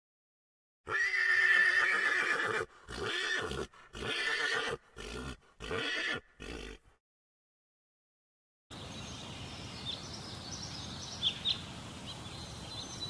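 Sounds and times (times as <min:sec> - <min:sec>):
horse whinnying: 0:00.9 - 0:07.0.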